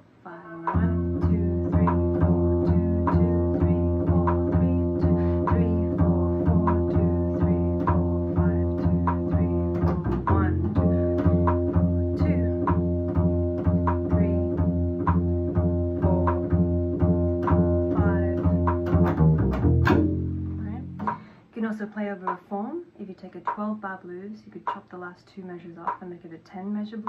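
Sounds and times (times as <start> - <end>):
metronome clicks: 0.6 - 8.0, 17.4 - 21.3, 23.4 - 23.7, 24.7 - 24.9
upright bass plucked: 0.6 - 21.4.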